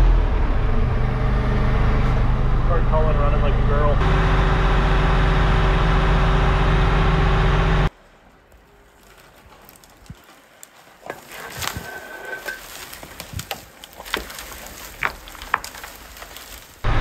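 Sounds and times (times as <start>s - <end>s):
trees snapping and cracking: 7.9s - 16.9s.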